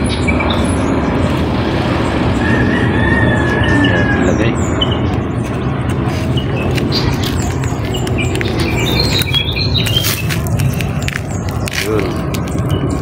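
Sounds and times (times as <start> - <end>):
noisy background: 0.0 - 13.0
rooster crowing: 2.3 - 4.5
small bird chirps: 3.5 - 13.0.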